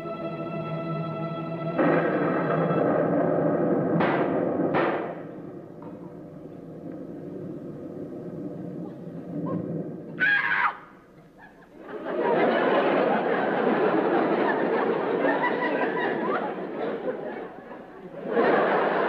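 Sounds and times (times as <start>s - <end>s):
dramatic orchestral music: 0.0s - 5.0s
studio audience laughter: 11.2s - 19.0s.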